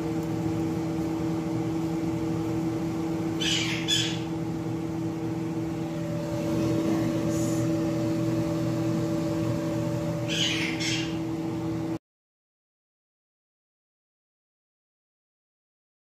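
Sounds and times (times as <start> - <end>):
kitchen appliance motor hum: 0.0 - 12.0.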